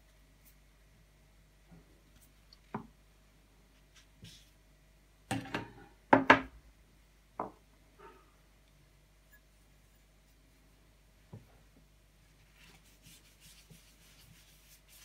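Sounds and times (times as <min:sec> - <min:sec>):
objects knocking on wooden workbench: 0:05.3 - 0:06.5.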